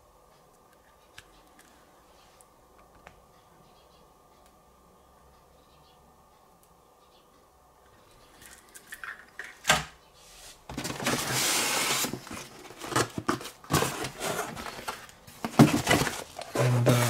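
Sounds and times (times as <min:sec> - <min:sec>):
clicks and knocks of packaging: 0:10.7 - 0:17.0
loud packaging rustle: 0:10.7 - 0:17.0.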